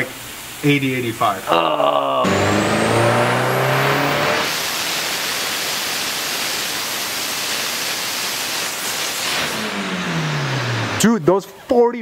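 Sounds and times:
loud rushing noise: 2.2 - 5.0
car engine revving with whine: 2.2 - 5.4, 9.2 - 11.0.

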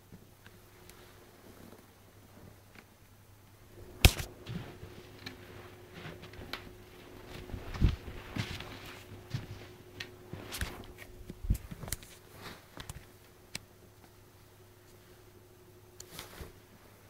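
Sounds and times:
steady low hum: 0.0 - 17.0
camera handling noise: 4.0 - 4.3.

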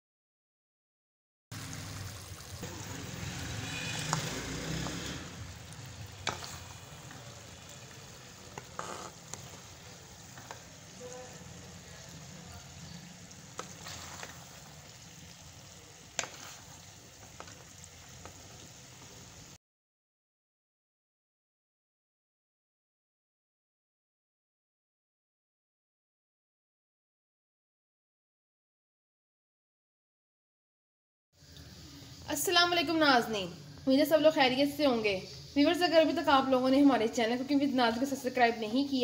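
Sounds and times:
food sizzling in a pot: 1.5 - 19.6, 31.4 - 39.0.

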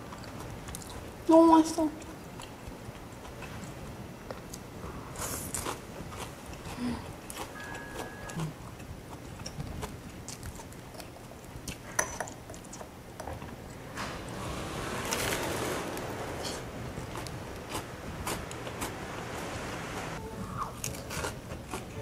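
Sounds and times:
person chewing food: 0.0 - 1.1, 2.0 - 13.8, 16.9 - 19.0, 20.6 - 22.0.

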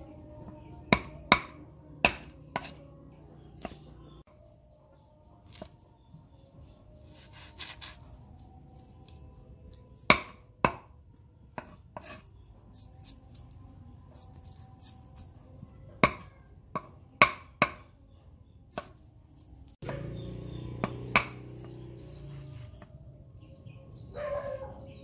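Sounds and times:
knife chopping on wooden board: 0.9 - 2.9, 10.0 - 10.9, 11.6 - 13.2, 18.7 - 19.0, 19.8 - 23.0.

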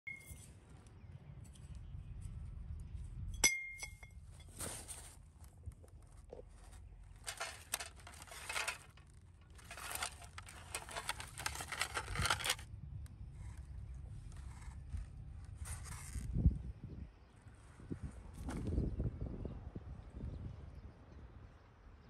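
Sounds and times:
rough scraping and tearing: 4.5 - 12.6, 13.4 - 16.4.

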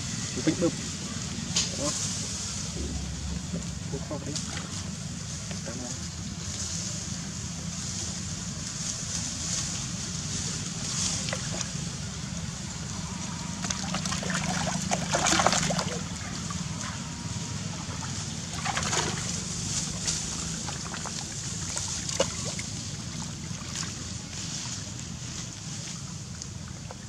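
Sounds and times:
muddy water splashing: 2.5 - 5.2, 9.8 - 12.8, 13.6 - 27.0.

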